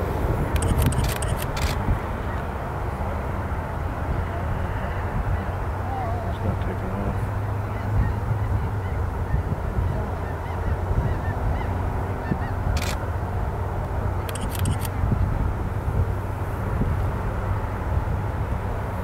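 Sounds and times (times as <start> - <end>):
jet engines rumbling: 0.0 - 19.0
sharp clicks: 0.5 - 1.8, 14.3 - 14.9.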